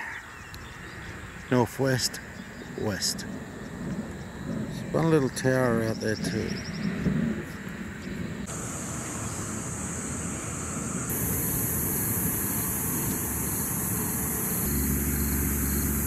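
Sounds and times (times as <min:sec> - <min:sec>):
wind on microphone: 0:02.6 - 0:08.5
low engine hum: 0:08.2 - 0:16.0
high-pitched insect drone: 0:08.5 - 0:16.0.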